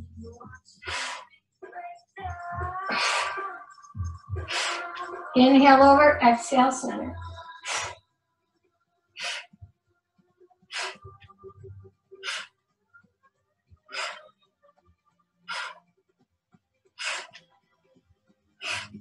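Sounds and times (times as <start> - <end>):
woman breathing forcefully: 0.8 - 1.4, 2.7 - 5.2, 7.4 - 8.0, 9.2 - 9.6, 10.7 - 11.2, 12.2 - 12.6, 13.9 - 14.4, 15.5 - 15.8, 17.0 - 17.4, 18.6 - 19.0.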